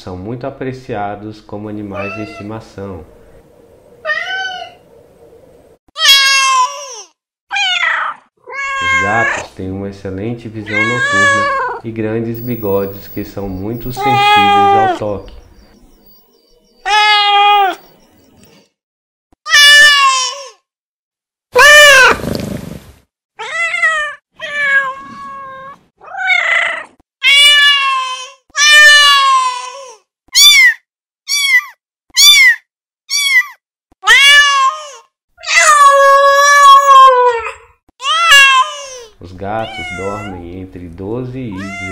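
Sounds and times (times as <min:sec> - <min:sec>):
cat meowing: 0:02.0 - 0:02.4, 0:04.0 - 0:04.8, 0:06.0 - 0:09.5, 0:10.7 - 0:11.8, 0:13.8 - 0:15.9, 0:16.8 - 0:17.8, 0:19.5 - 0:20.5, 0:21.6 - 0:22.2, 0:23.4 - 0:40.4, 0:41.5 - 0:41.9.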